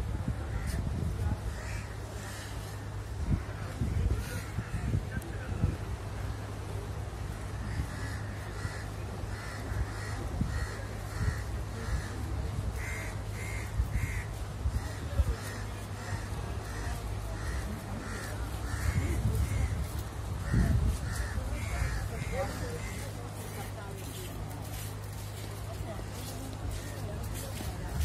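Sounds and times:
crows cawing: 0:01.6 - 0:02.7, 0:07.6 - 0:24.8.

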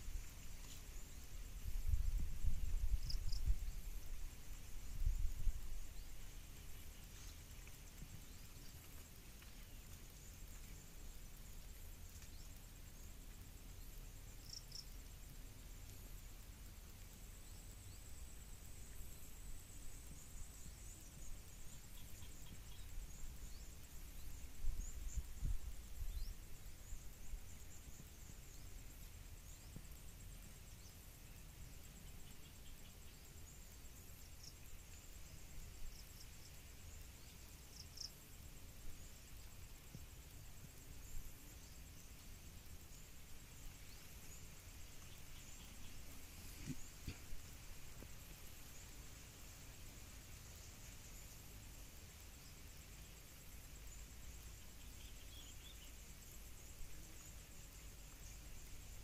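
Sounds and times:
faint high hiss: 0:00.0 - 0:59.0
insect trill: 0:00.0 - 0:59.0
small high chirps: 0:00.0 - 0:59.0.

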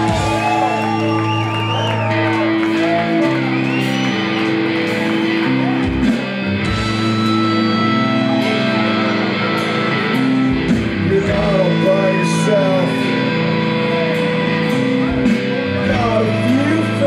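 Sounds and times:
punk rock band playing live: 0:00.0 - 0:17.0
person singing: 0:11.0 - 0:17.0.

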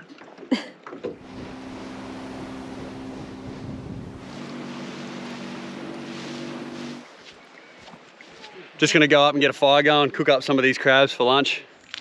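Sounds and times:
wind: 0:00.0 - 0:12.0
outboard motor humming: 0:01.0 - 0:07.1
rushing water: 0:01.1 - 0:07.3.

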